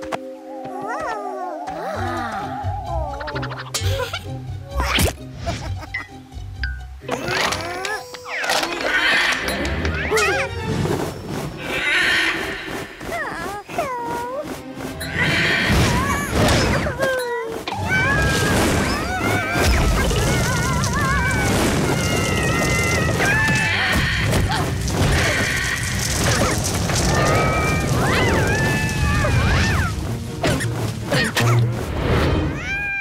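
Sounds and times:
cartoon music: 0.6 - 10.8
thuds and crashes: 18.2 - 31.0.

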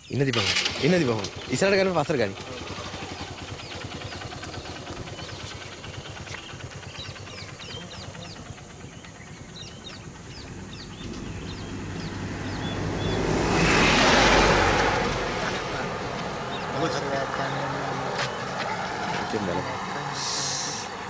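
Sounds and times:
bus passing: 0.0 - 21.0
vehicle engine idling: 0.0 - 21.0
high bird chirps: 3.0 - 13.6.

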